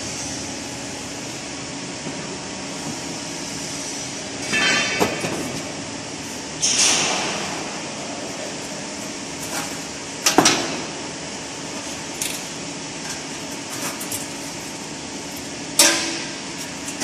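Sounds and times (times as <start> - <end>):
metal clanking and scraping: 4.4 - 5.7.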